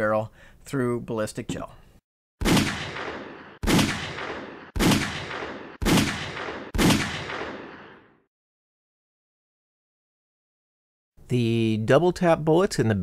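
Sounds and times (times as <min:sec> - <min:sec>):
pistol shots with echo: 0:02.4 - 0:08.1.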